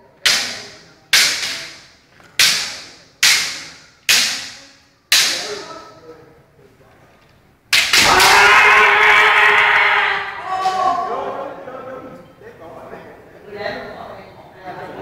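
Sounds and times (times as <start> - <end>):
bamboo swords striking: 0.2 - 5.8, 7.7 - 8.7
loud sustained shout: 8.0 - 11.5.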